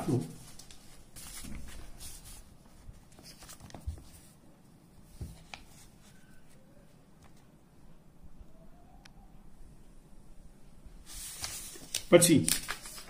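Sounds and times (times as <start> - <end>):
book pages rustling: 0.4 - 4.4, 5.0 - 7.4, 11.0 - 13.0.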